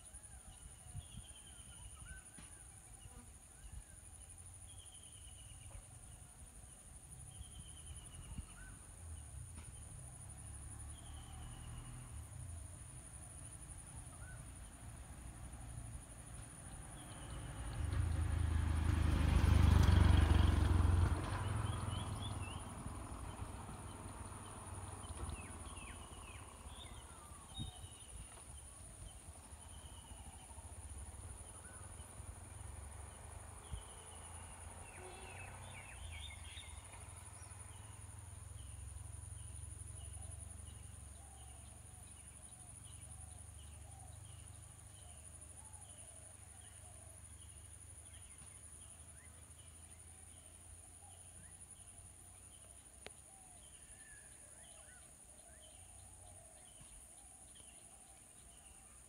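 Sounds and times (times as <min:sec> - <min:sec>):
high insect drone: 0:19.4 - 0:44.6.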